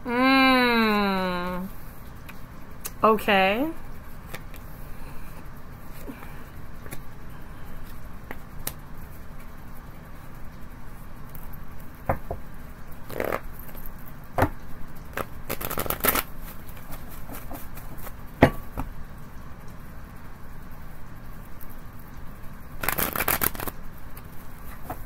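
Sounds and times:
cards being shuffled: 4.3 - 4.7, 13.1 - 13.4, 15.2 - 18.2, 22.8 - 25.0.

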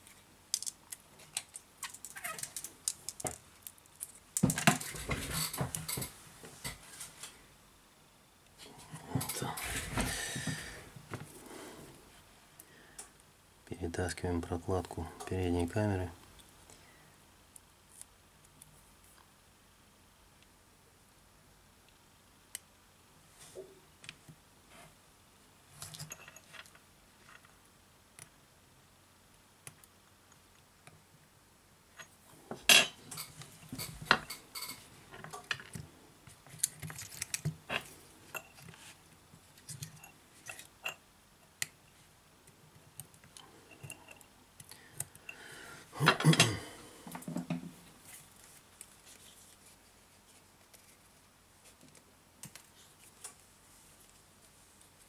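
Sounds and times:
metal tools clicking and scraping: 32.7 - 35.4.

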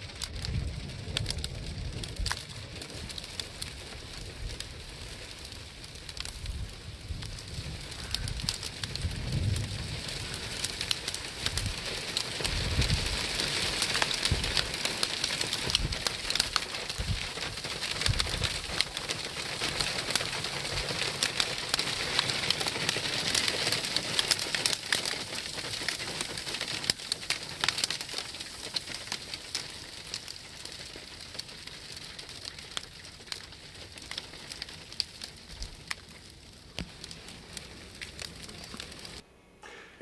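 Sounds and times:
snow and graupel pattering: 0.0 - 39.2.

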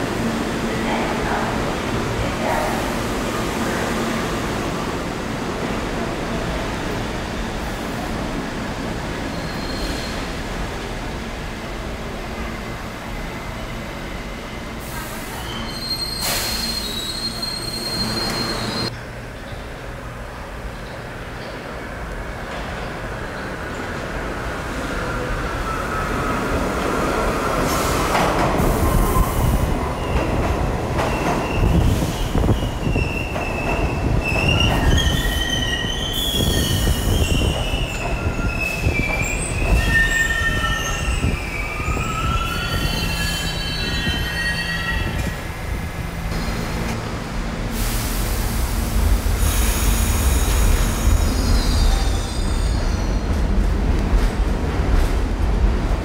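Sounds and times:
subway train rumbling in tunnel: 0.0 - 56.0
high-pitched brake squealing: 15.3 - 18.9, 34.4 - 45.5, 50.9 - 53.3.

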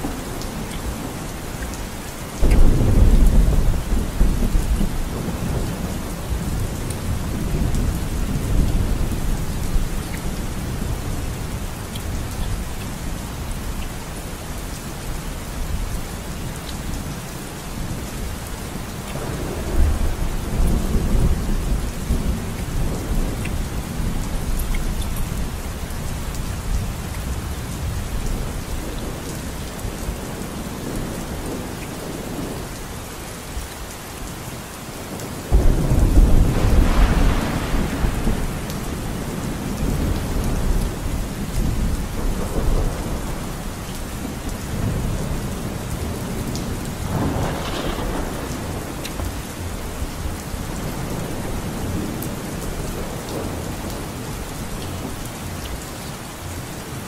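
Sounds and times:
steady rain: 0.0 - 57.0
thunder rumble: 2.4 - 11.0, 35.5 - 43.6, 44.2 - 55.2.

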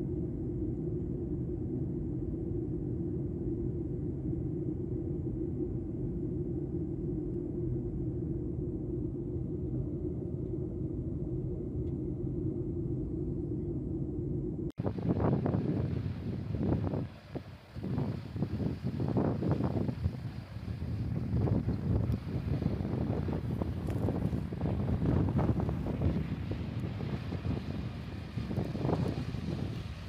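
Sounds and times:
wind buffeting microphone: 14.5 - 30.0.

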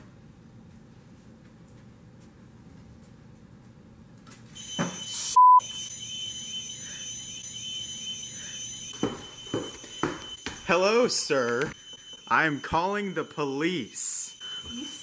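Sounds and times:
loud short beep: 4.6 - 5.8
warbling alarm tones: 4.6 - 15.0.

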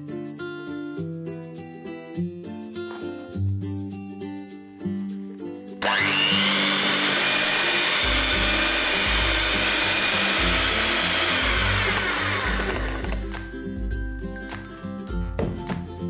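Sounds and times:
background music: 0.0 - 16.0
electric hand mixer motor: 5.8 - 13.4.

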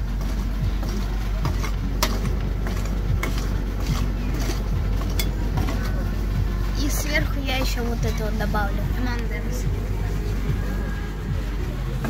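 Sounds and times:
steady low machine hum: 0.0 - 12.0
metal spatulas scraping steel plate: 1.4 - 5.9.

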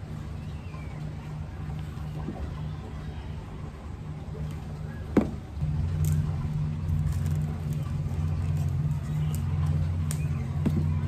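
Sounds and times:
low mechanical hum: 0.0 - 11.0.

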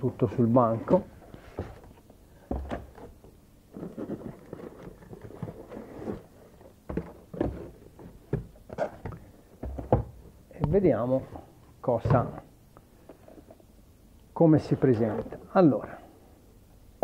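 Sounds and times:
cardboard rustling: 1.3 - 10.1
boxes knocking on wooden workbench: 6.9 - 10.2.

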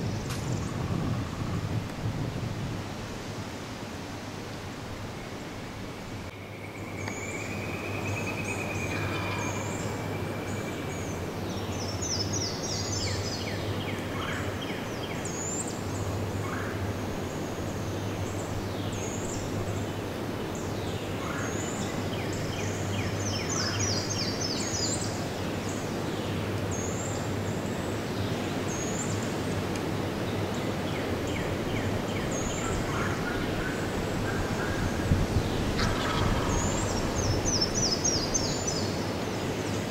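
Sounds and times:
songbirds chirping and trilling: 6.3 - 39.9
turkey gobbling: 35.8 - 36.8.

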